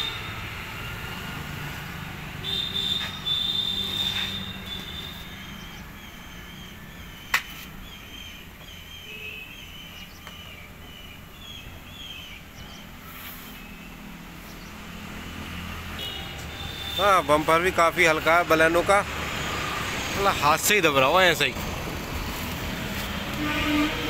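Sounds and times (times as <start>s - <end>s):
small birds chirping: 2.8s - 15.0s.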